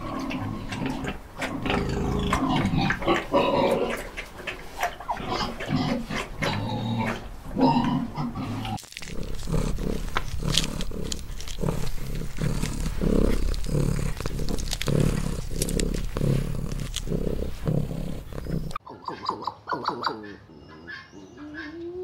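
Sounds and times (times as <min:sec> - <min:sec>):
porcupine chewing rhythmically: 0:00.0 - 0:18.8
crunching clicks: 0:05.4 - 0:18.8.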